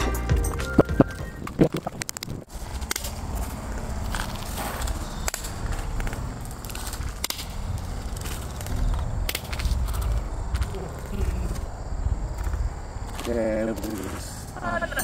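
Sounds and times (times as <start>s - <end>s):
steady low rumble: 1.4s - 13.6s.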